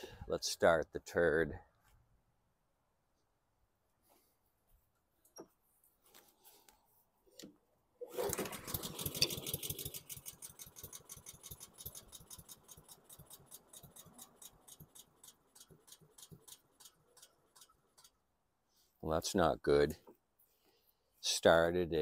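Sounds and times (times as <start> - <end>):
lawn mower engine running rough: 8.1 - 16.8.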